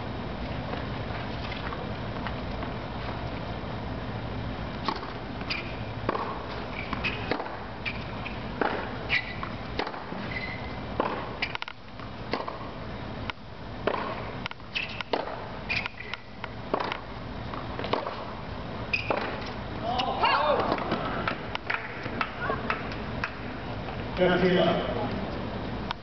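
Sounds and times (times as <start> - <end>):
racket striking tennis ball: 4.8 - 10.3, 11.0 - 11.7, 12.3 - 12.7, 13.8 - 17.1, 17.8 - 18.3, 18.9 - 23.5
tennis ball bouncing: 4.8 - 23.6
shoes squeaking on court: 4.9 - 11.6, 14.1 - 17.0, 18.9 - 23.0.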